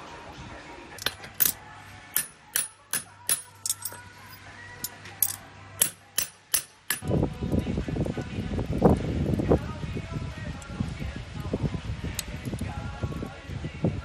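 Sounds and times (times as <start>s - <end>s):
hammer striking metal on anvil: 2.2s - 4.0s, 5.2s - 7.0s.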